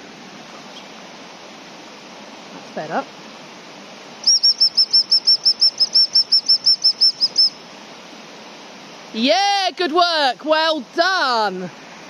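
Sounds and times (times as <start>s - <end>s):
short high whistle pips: 4.2s - 7.6s.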